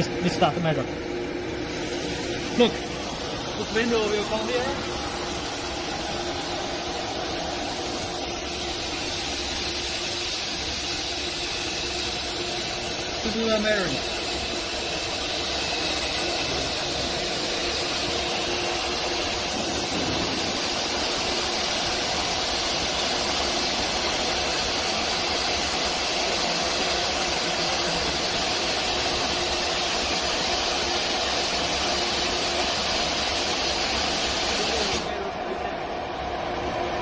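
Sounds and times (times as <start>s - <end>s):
router hum and hiss: 0.0s - 37.0s.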